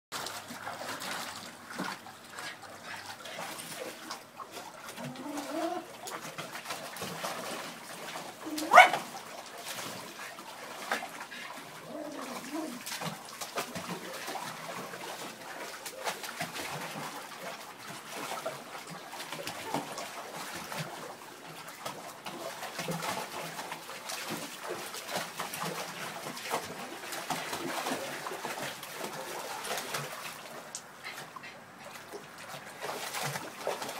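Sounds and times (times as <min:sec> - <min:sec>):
dogs splashing in water: 0:00.1 - 0:33.9
dog whining: 0:05.0 - 0:05.9, 0:08.4 - 0:09.0, 0:11.8 - 0:12.8
dog barking: 0:08.6 - 0:09.1.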